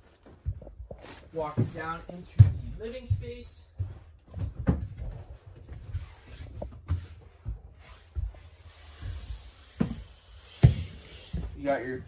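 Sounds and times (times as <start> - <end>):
footsteps thumping on floor: 1.6 - 5.8.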